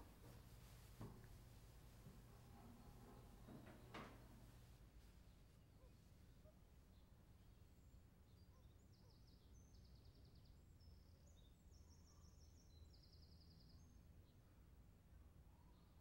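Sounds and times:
low room hum: 0.0 - 16.0
small birds chirping and trilling: 7.8 - 14.1.

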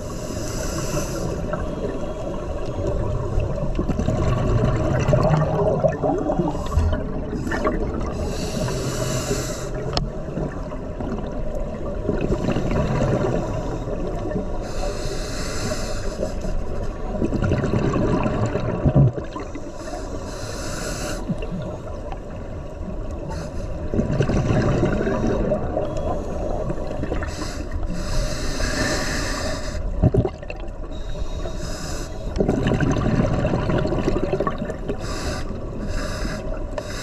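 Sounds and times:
regulator inhale hiss: 0.0 - 1.7, 6.5 - 10.0, 13.4 - 16.9, 19.6 - 21.4, 23.2 - 23.9, 27.2 - 30.0, 30.9 - 32.4, 34.9 - 37.0
bubbling gurgle of exhaled air: 1.2 - 14.6, 17.0 - 19.8, 23.8 - 31.2, 32.3 - 36.7.

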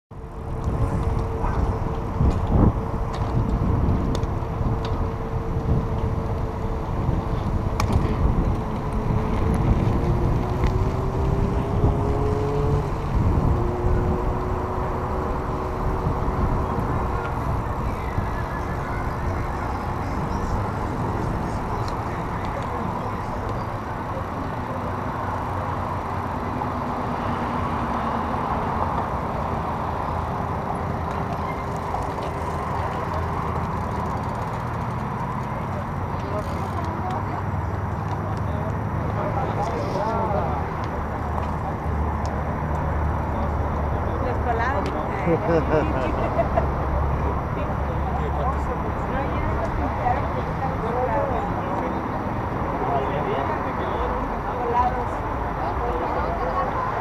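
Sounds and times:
bicycle tyre noise on road: 0.1 - 57.0
wind rumbling on microphone: 0.2 - 37.9.

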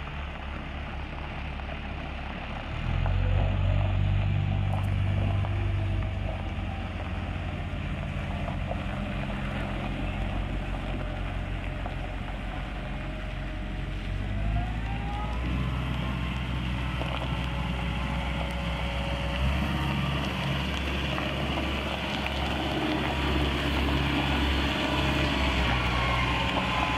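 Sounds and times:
excavator diesel engine running: 0.0 - 26.9
rising whine: 13.2 - 26.9.

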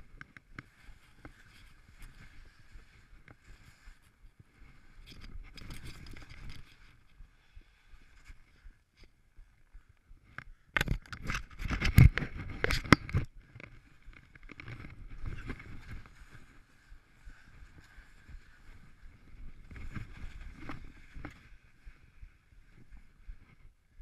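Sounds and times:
skis scraping on snow: 0.4 - 5.0, 13.7 - 23.3.

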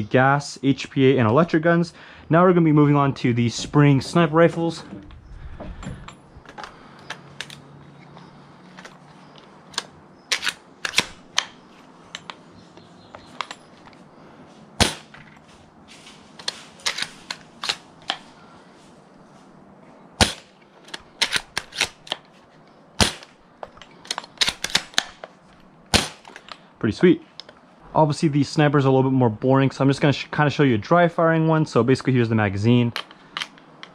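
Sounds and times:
rifle bolt clicks and clacks: 6.4 - 12.4, 16.4 - 18.3, 20.8 - 22.3, 23.2 - 25.4, 33.0 - 33.9
airsoft rifle shots: 14.8 - 15.2, 20.2 - 20.6, 23.0 - 23.3, 25.9 - 26.3.

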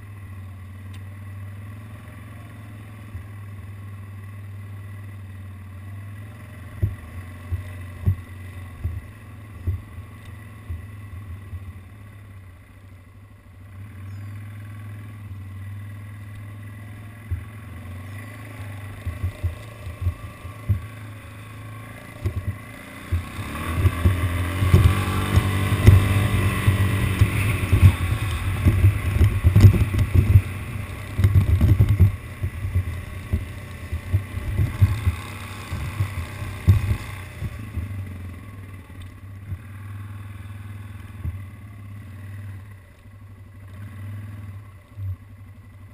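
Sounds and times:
atv engine running: 0.0 - 45.9
knocks over rough ground: 6.7 - 9.9, 18.8 - 21.0, 22.1 - 38.0.

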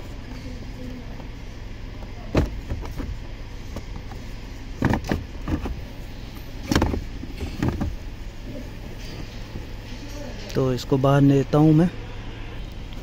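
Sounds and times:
steady low hum: 0.0 - 13.0
hard plastic knocks and rattles: 2.3 - 3.2, 4.8 - 5.9, 6.6 - 8.0.

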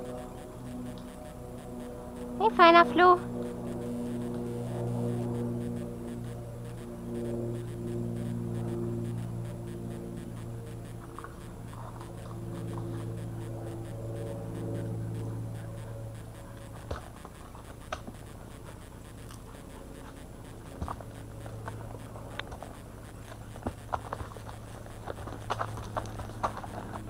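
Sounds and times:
low hum: 0.0 - 27.0
horse hooves on gravel: 19.6 - 27.0.

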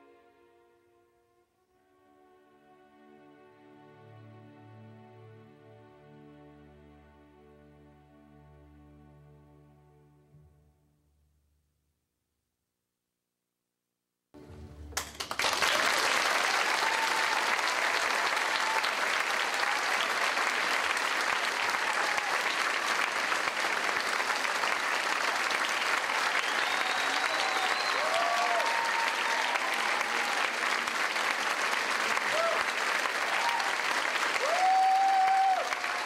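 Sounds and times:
audience applauding: 15.0 - 36.0.

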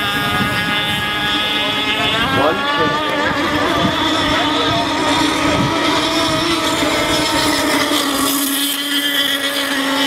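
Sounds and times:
model boat motor buzzing: 0.0 - 10.0.

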